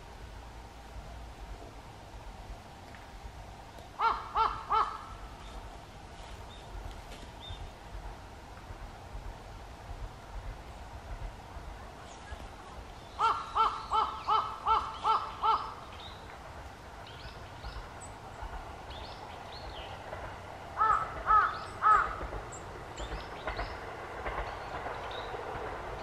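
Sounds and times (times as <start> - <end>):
woodpecker harsh calls: 4.0 - 5.2, 13.1 - 16.2, 20.8 - 22.3
small birds chirping: 11.9 - 16.4, 21.4 - 25.4.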